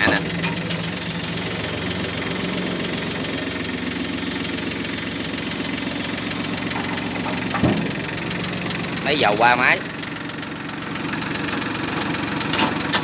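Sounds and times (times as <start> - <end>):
diesel engine running: 0.0 - 13.0.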